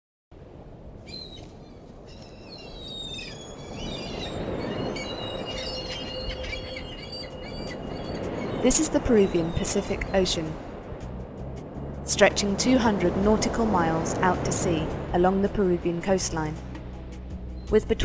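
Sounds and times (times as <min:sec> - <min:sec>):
birds chirping and whistling: 0:02.1 - 0:10.5.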